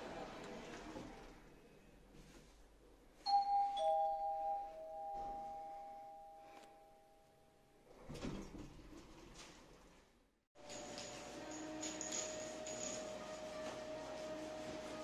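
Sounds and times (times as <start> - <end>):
elevator chime ding-dong: 3.3 - 7.3.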